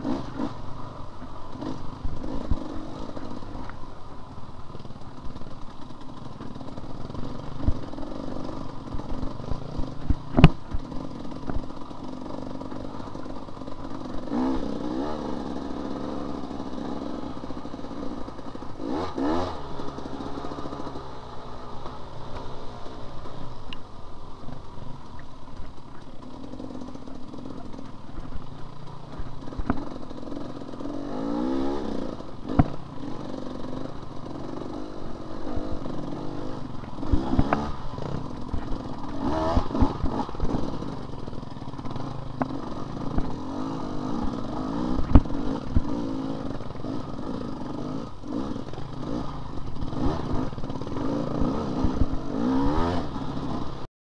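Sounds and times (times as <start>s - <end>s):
dirt bike engine revving: 0.0s - 3.9s, 4.7s - 23.6s, 24.2s - 53.9s
bike clattering over rough ground: 31.5s - 47.2s.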